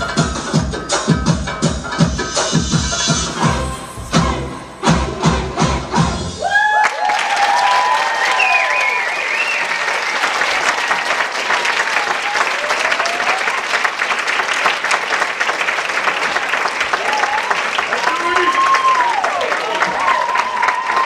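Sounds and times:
dance music drum beats: 0.0 - 6.4
crowd cheering: 4.2 - 21.0
audience applause: 6.4 - 21.0.

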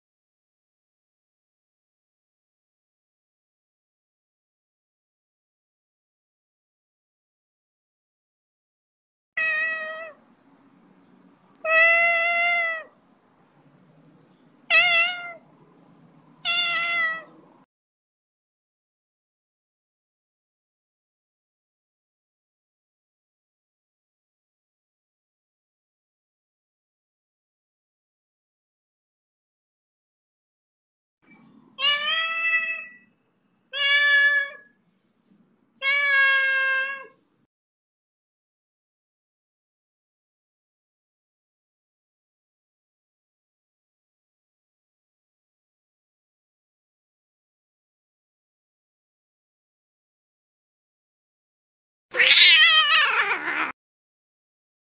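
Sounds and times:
cat meowing: 9.4 - 10.2, 11.6 - 12.9, 14.7 - 15.4, 16.4 - 17.4, 31.8 - 33.1, 33.7 - 34.7, 35.8 - 37.2, 52.2 - 53.8.

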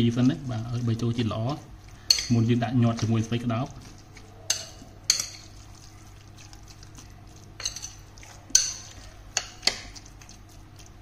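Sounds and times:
spoon mixing wet filling: 0.0 - 11.0
spoon clinking against bowl: 2.0 - 2.5, 4.5 - 5.6, 7.6 - 9.9.

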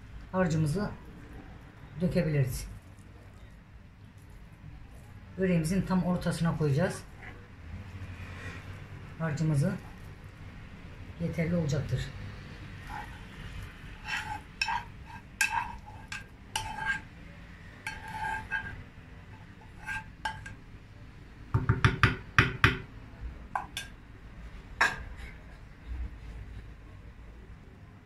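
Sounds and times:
metal spoon clinking on saucepan: 14.0 - 17.1, 17.8 - 20.6
spoon knocking against pan: 19.9 - 20.6, 21.5 - 22.9, 23.6 - 24.0.

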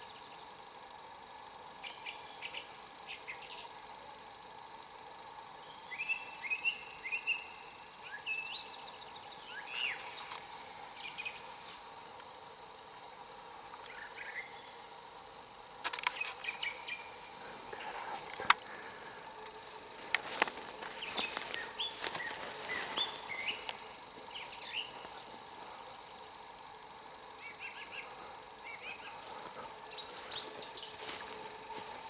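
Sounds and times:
songbirds singing: 0.0 - 0.7, 1.8 - 32.0.

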